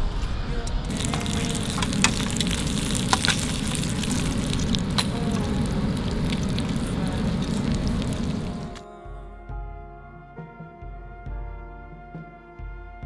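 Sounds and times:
bacon sizzling in a frying pan: 0.9 - 8.8.

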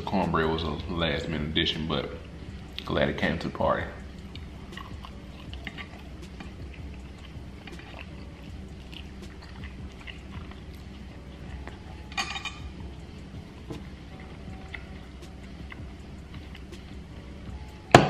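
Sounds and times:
low room hum: 0.0 - 18.0
close chewing with mouth clicks: 4.0 - 17.8.

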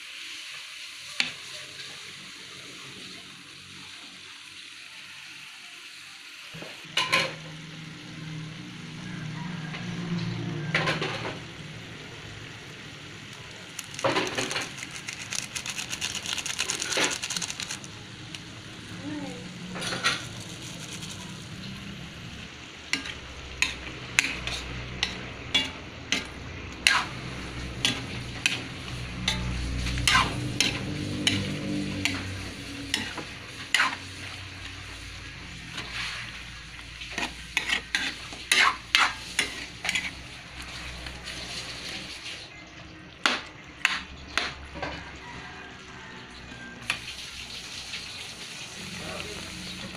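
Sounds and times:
food sizzling: 0.0 - 49.9
spatula scraping metal wok: 13.8 - 17.9, 19.7 - 42.4, 43.2 - 45.2.

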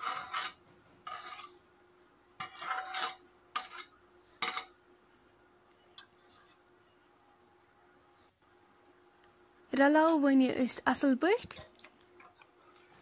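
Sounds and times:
steel ladle scraping a bowl: 0.0 - 1.6, 2.4 - 4.7.

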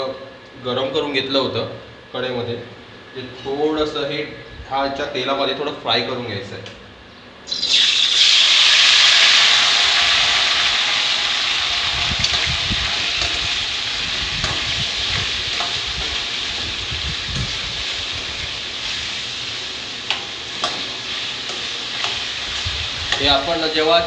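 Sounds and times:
chicken sizzling in hot oil: 7.5 - 24.0.

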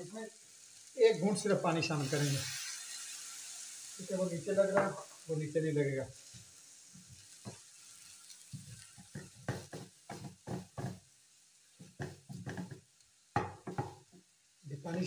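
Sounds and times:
chicken sizzling in a frying pan: 0.0 - 15.0
spatula scraping a pan: 7.0 - 11.0.

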